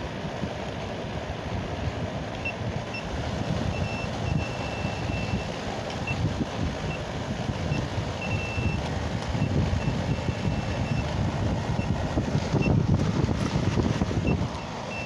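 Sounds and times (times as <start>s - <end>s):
steady low rumble: 0.0s - 15.0s
short high-pitched beeps: 3.7s - 6.2s, 7.7s - 8.8s, 9.4s - 11.0s, 14.3s - 15.0s.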